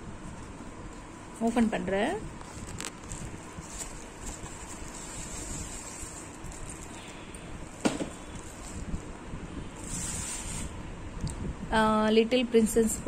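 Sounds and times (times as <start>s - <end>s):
plastic and cardboard rustling: 0.2s - 9.1s.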